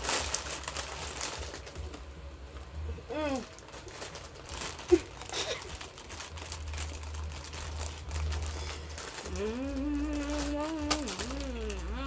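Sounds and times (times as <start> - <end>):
plastic packets crinkling: 0.0 - 12.0
person humming with mouth full: 9.2 - 12.0.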